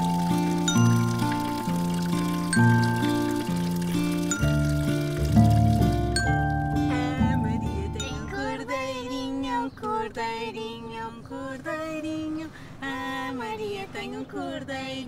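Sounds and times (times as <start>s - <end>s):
background music: 0.0s - 8.6s
woman and girl singing: 6.8s - 15.0s.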